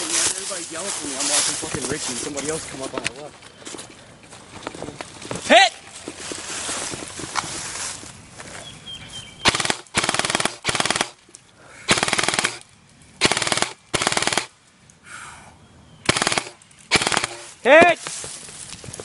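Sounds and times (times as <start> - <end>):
airsoft guns firing bursts: 9.4 - 11.2, 11.9 - 12.6, 13.2 - 14.5, 16.1 - 17.6.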